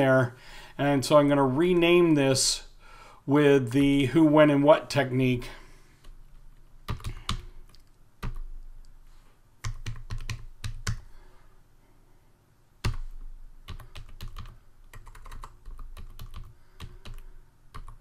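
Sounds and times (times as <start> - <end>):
typing on computer keyboard: 6.9 - 8.5, 9.6 - 11.1, 12.8 - 18.0.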